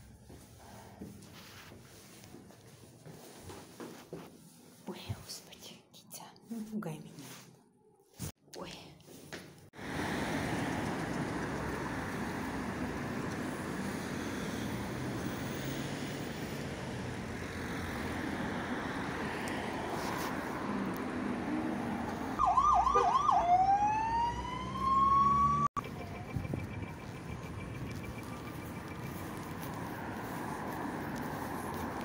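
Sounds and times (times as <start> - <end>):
road traffic passing: 0.0 - 5.0, 9.1 - 32.0
emergency vehicle siren: 22.4 - 30.5.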